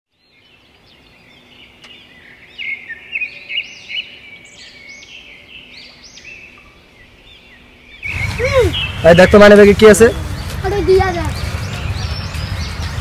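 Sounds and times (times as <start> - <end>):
birds chirping: 0.1 - 13.0.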